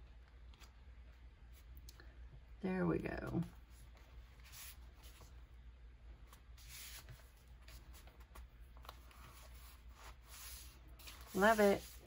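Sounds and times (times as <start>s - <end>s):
paper rustling: 6.3s - 12.0s.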